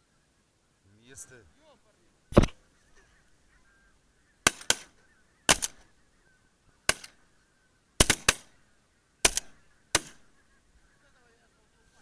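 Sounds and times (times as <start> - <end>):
shotgun shots: 4.4 - 4.9, 5.5 - 5.8, 8.0 - 8.5, 9.2 - 10.2.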